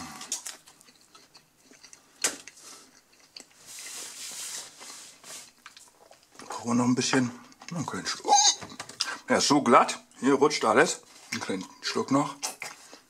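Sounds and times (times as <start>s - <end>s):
person chewing: 0.0s - 6.5s
soft hiss: 3.6s - 5.9s.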